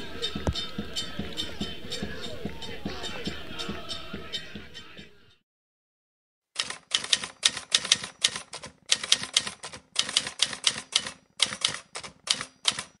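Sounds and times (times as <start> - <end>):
manual typewriter typing: 6.6 - 13.0.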